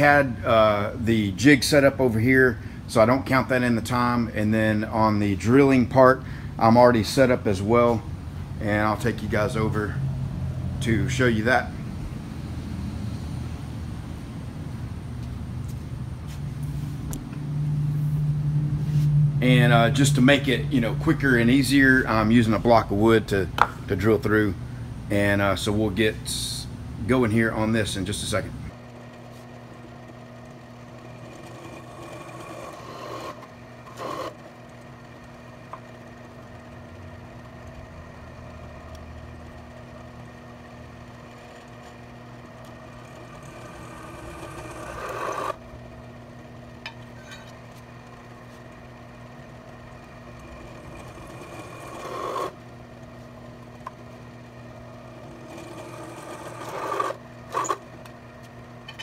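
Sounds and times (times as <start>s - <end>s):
milling machine spindle running: 28.7s - 59.0s
drill cutting steel: 31.0s - 34.4s, 42.8s - 45.6s, 50.2s - 52.6s, 55.1s - 57.8s.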